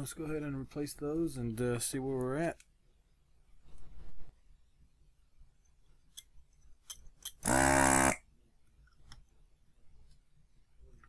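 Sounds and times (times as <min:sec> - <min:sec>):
desoldering pump buzz: 0:07.4 - 0:08.2.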